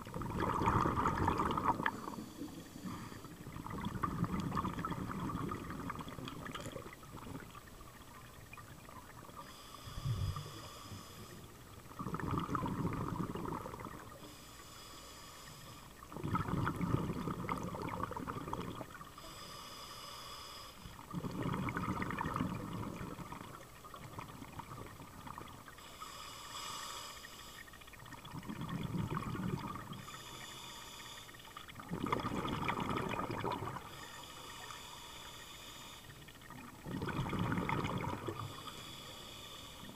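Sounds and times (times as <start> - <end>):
bubbling exhale: 0.0 - 7.7, 9.0 - 39.9
regulator hissing inhale: 1.9 - 3.5, 9.4 - 11.7, 14.2 - 16.0, 19.2 - 21.0, 25.8 - 27.8, 30.0 - 31.6, 33.8 - 36.3, 38.3 - 39.9.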